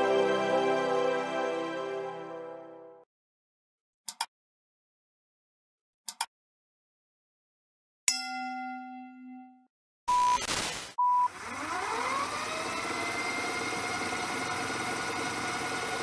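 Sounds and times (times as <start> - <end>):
soft intro music: 0.0 - 3.0
bell-like ding: 8.1 - 9.7.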